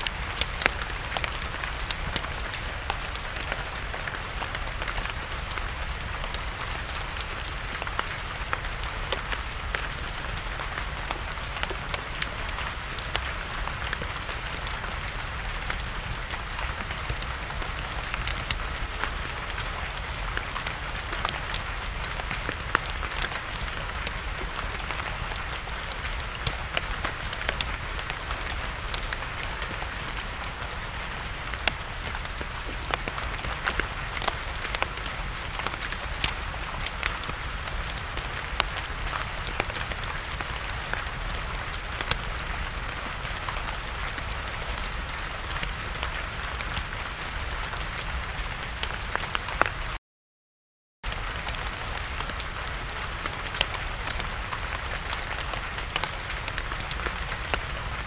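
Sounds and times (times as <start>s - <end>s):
campfire popping and crackling: 0.0s - 49.9s, 51.0s - 58.0s
steady rain falling: 0.0s - 50.0s, 51.0s - 58.0s.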